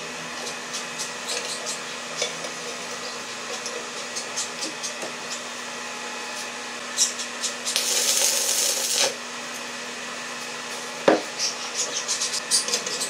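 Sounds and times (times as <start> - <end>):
welding arc crackling and hissing: 7.6 - 9.2
welding arc strike: 7.7 - 9.2.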